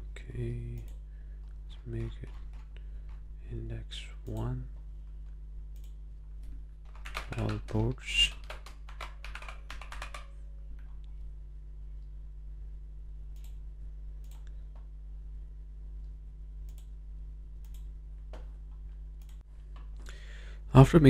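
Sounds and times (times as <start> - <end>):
steady low hum: 0.0 - 21.0
keyboard typing: 1.9 - 3.2, 5.8 - 10.9
mouse clicks: 17.6 - 18.5.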